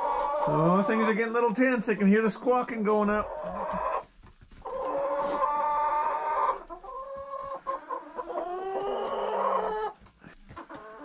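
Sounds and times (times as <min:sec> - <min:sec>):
chickens squawking: 0:00.0 - 0:11.0.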